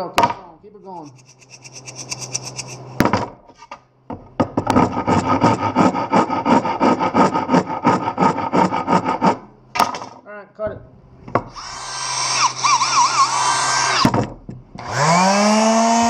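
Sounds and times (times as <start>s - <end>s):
hand saw cutting wood: 1.0s - 3.0s, 4.6s - 9.5s, 11.5s - 14.0s.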